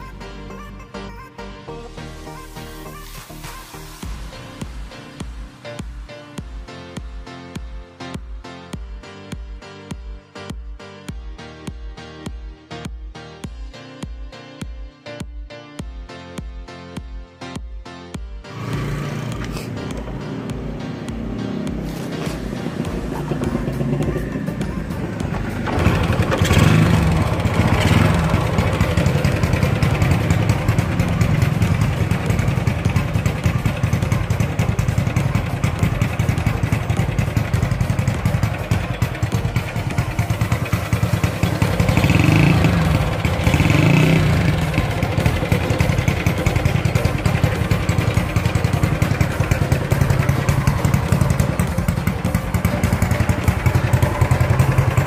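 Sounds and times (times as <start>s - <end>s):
motorcycle engine idling: 18.5s - 55.0s
motorcycle engine revving: 18.5s - 55.0s.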